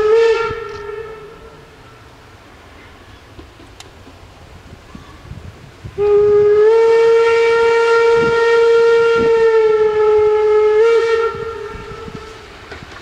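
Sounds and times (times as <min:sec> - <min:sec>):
steam whistle long blast: 0:00.0 - 0:02.0, 0:05.9 - 0:12.6.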